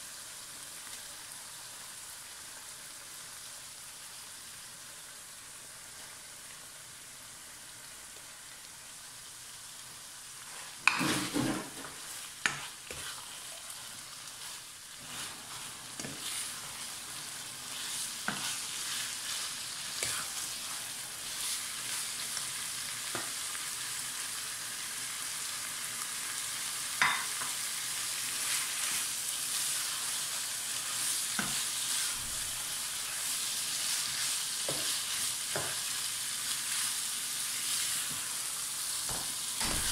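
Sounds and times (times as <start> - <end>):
food sizzling in a wok: 0.0 - 39.9
spatula scraping a pan: 10.4 - 22.2, 28.2 - 36.0.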